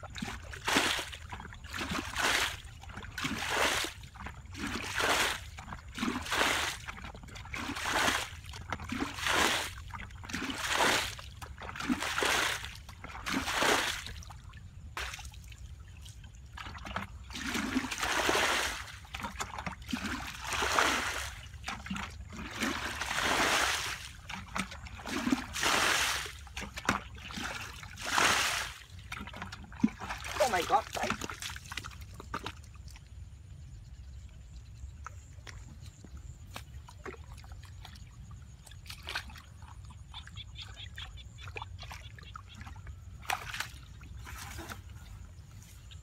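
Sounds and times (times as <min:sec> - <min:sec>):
water splashing: 0:00.0 - 0:33.0, 0:35.1 - 0:45.7.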